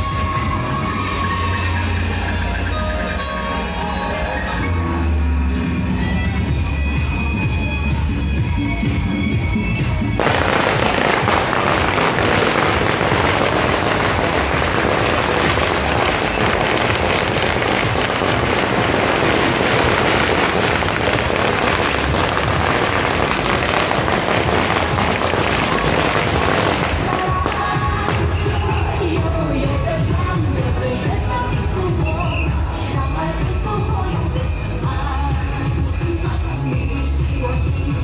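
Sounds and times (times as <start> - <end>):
procession music: 10.2 - 29.5
firecrackers crackling: 10.2 - 30.8.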